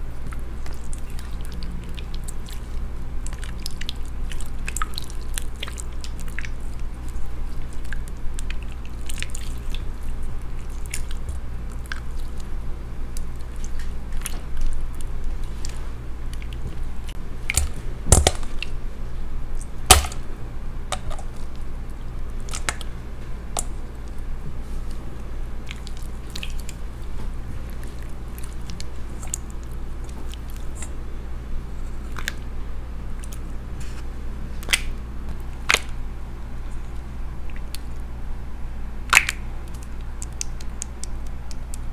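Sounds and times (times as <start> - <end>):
low steady hum: 0.0 - 41.9
slime squeezed with sticky pops: 39.1 - 41.9.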